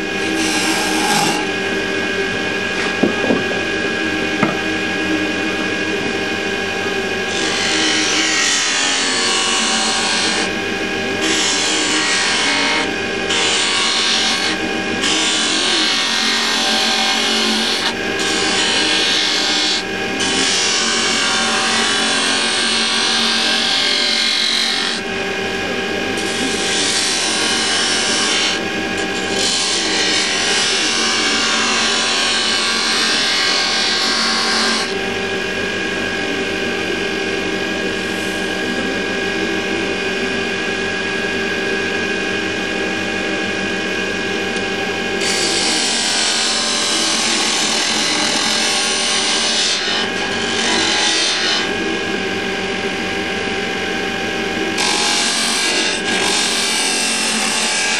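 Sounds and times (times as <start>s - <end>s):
lathe motor hum: 0.0s - 57.9s
tool scraping spinning wood: 0.3s - 1.5s.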